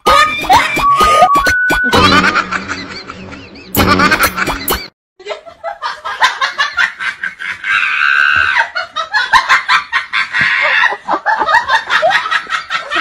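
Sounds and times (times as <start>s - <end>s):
person laughing: 0.0s - 5.5s.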